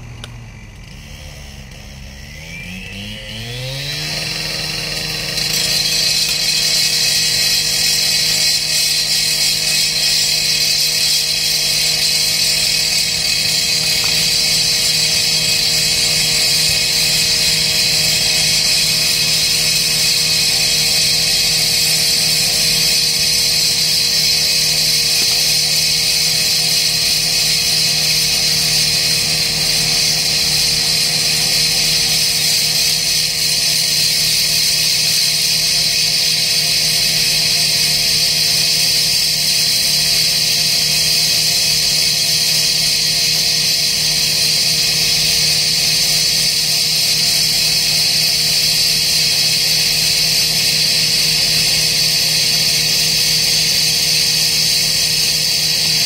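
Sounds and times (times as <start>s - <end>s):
piling rig engine droning: 0.0s - 34.7s.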